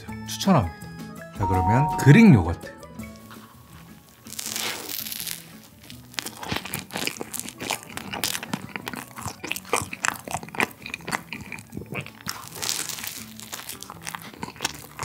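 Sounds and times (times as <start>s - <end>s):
quiet background music: 0.0s - 15.0s
chewing with wet mouth clicks: 4.3s - 15.0s.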